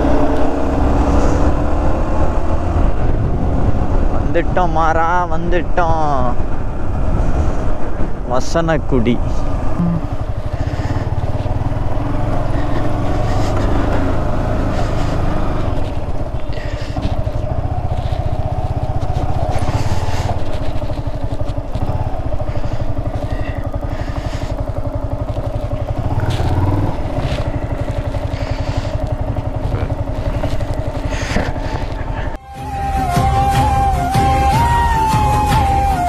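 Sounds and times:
motorcycle engine running at low revs: 0.0s - 36.0s.

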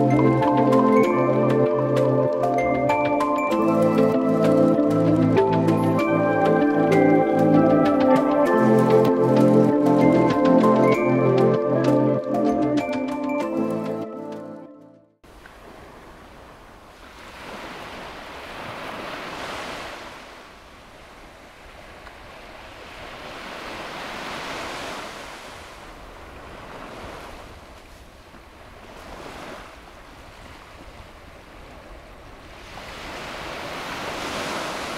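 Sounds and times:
small waves washing onto beach: 15.3s - 34.9s.

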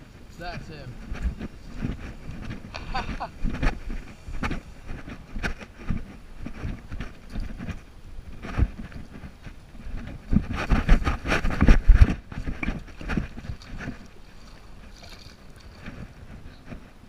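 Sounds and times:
light splashing in water: 13.4s - 15.8s.

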